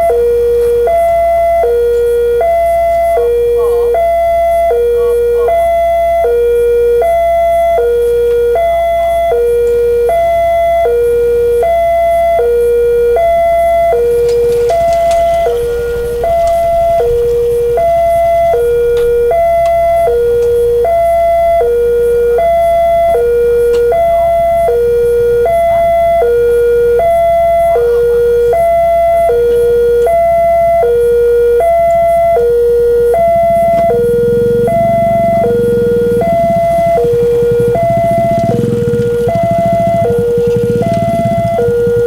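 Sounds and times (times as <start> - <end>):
two-tone crossing alarm: 0.0 - 42.0
low rumble: 12.8 - 29.3, 31.6 - 42.0.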